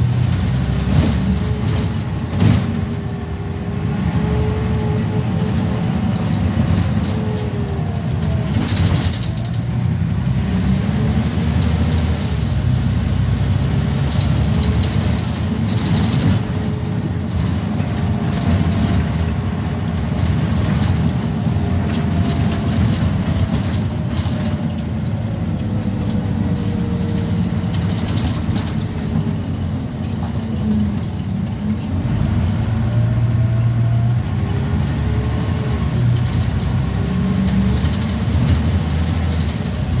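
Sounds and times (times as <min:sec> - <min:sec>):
bus engine drone with whine: 0:00.0 - 0:40.0
bus rattles: 0:00.0 - 0:40.0.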